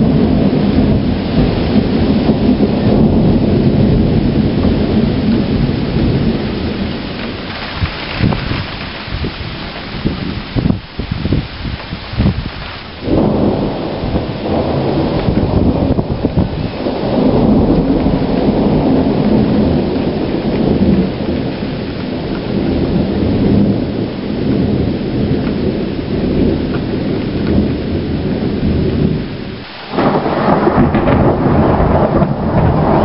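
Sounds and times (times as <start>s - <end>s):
rain hissing: 0.0s - 33.0s
thunder rumbling: 0.0s - 33.0s.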